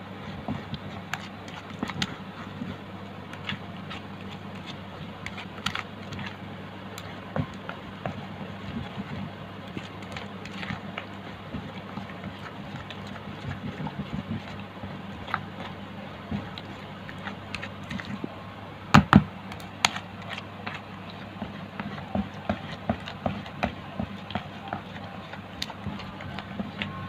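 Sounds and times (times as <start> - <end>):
steady low hum: 0.0 - 27.0
spoon scraping paste in bowl: 7.0 - 18.2.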